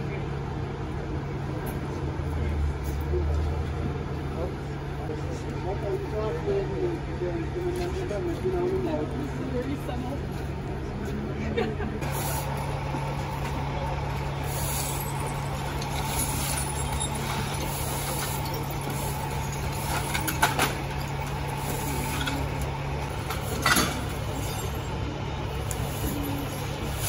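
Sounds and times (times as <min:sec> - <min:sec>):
diesel engine idling: 0:00.0 - 0:27.0.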